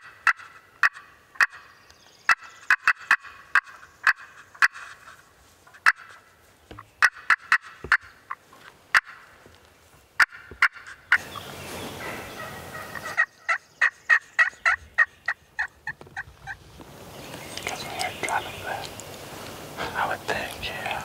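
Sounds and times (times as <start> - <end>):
turkey call clucks: 0.0 - 1.7, 2.3 - 6.2, 7.0 - 9.3, 10.2 - 11.4, 12.0 - 16.6
turkey call yelps: 12.0 - 16.6.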